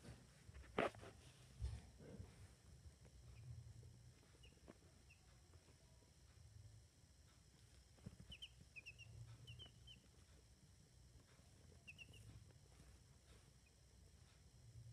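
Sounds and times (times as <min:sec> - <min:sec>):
faint low hum: 0:00.0 - 0:14.9
baby chicks peeping: 0:03.0 - 0:05.8, 0:07.3 - 0:14.4.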